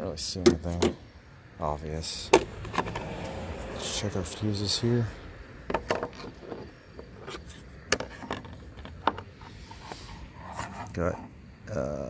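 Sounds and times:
plastic clicks and knocks: 5.7s - 9.3s.

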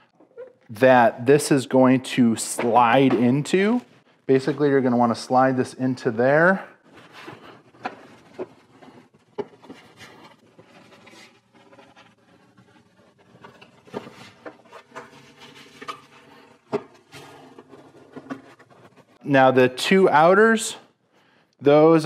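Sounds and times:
plastic rubbing on plastic: 6.0s - 19.3s.

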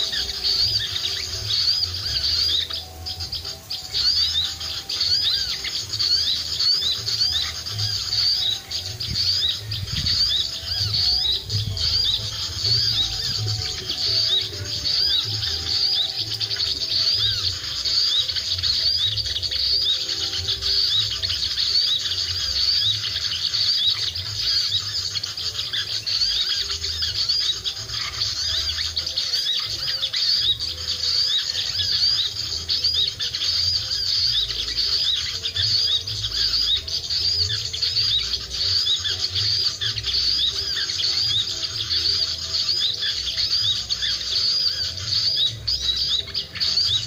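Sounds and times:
small birds twittering: 0.0s - 47.0s
wind rumbling on microphone: 8.9s - 12.2s.

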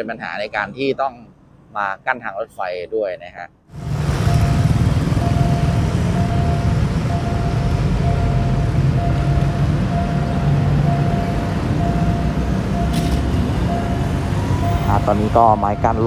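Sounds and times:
motorcycles and traffic rumble: 3.7s - 16.0s
level crossing electronic beep: 4.2s - 16.0s.

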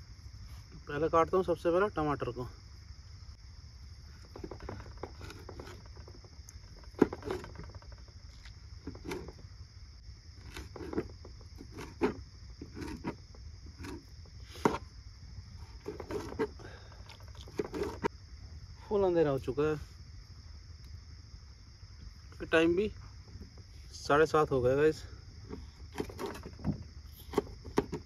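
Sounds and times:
crickets chirping: 0.0s - 28.0s
knife cutting tomatoes: 10.4s - 13.2s.

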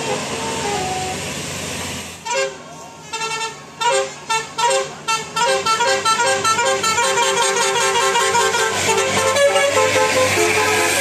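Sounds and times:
multi-tone bus horn melody: 0.0s - 1.2s, 2.2s - 11.0s
bus engine low hum: 0.0s - 11.0s.

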